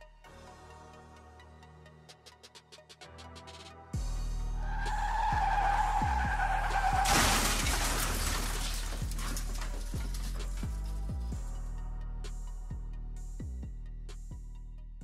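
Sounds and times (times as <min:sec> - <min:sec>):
music with bass drone and drums: 0:02.4 - 0:04.7, 0:09.0 - 0:15.0
car tyres screeching: 0:04.4 - 0:11.1
car crash: 0:04.6 - 0:11.2
glass shattering: 0:05.0 - 0:11.2.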